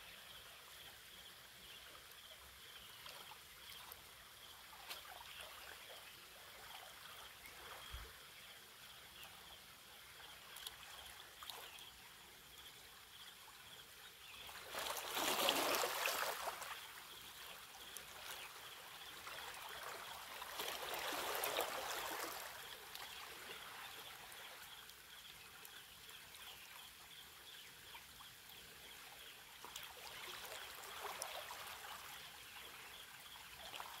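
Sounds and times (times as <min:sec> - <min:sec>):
small waves lapping on rocks: 0:14.5 - 0:24.8.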